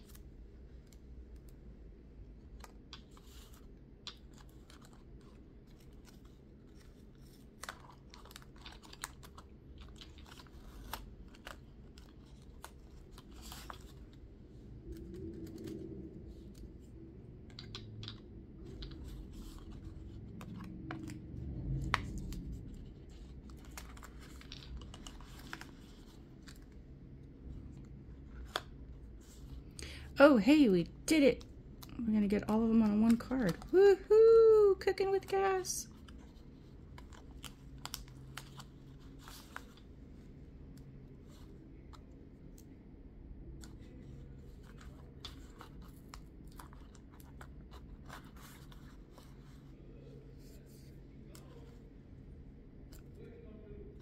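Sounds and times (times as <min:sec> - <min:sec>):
plastic sticks clicking and tapping: 0:17.4 - 0:19.1.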